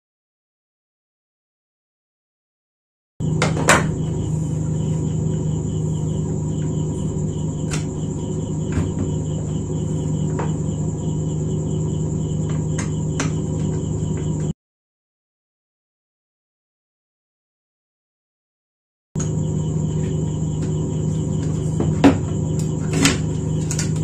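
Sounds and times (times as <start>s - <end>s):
low electrical hum: 3.2s - 14.5s, 19.2s - 24.0s
rapid pulsing chirp: 3.2s - 14.5s, 19.2s - 24.0s
high whine: 3.2s - 14.6s, 19.2s - 24.0s.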